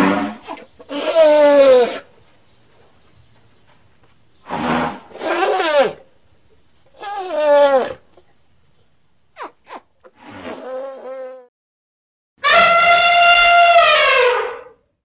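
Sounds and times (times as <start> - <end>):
elephant calf calling: 12.4 - 14.5.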